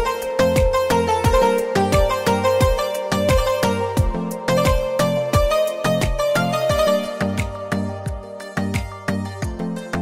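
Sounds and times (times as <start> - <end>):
background music with beat: 0.0 - 10.0.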